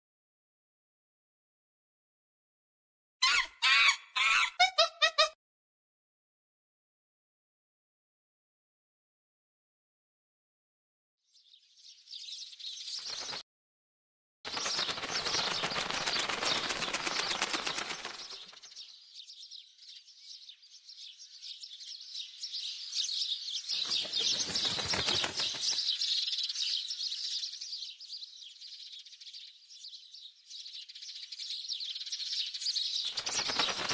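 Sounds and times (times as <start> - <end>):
birds chirping and twittering: 11.3 - 13.4, 14.5 - 33.9
wings fluttering: 12.6 - 13.4, 14.5 - 18.9, 23.7 - 26.4, 32.9 - 33.9.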